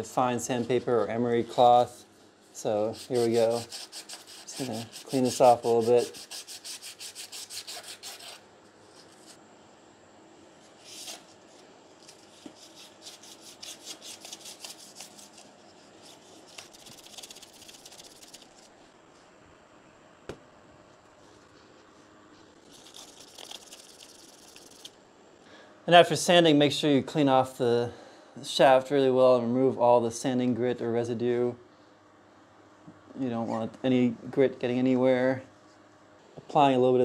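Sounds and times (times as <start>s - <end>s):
abrasive paper scraping metal shaft: 2.6s - 9.4s.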